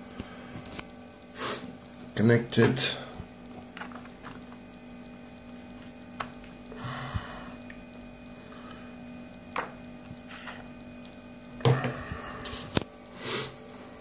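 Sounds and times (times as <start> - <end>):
steady electrical hum: 0.0 - 14.0.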